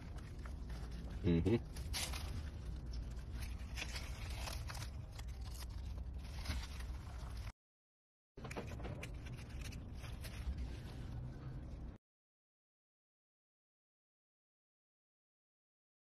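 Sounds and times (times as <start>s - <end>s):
leaves rustling: 0.0s - 7.5s
low outdoor rumble: 0.0s - 7.5s, 8.4s - 12.0s.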